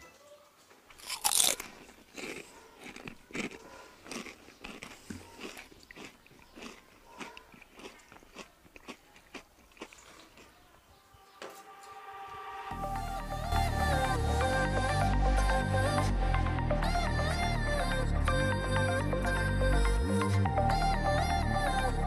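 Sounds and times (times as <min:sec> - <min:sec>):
person slurping and chewing noodles: 0:01.0 - 0:10.6.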